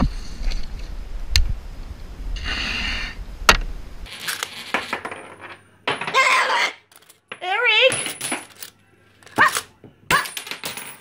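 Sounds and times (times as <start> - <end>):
wind: 0.0 - 4.1
coins clinking in metal jar: 4.1 - 6.1, 6.9 - 8.8, 10.1 - 11.0.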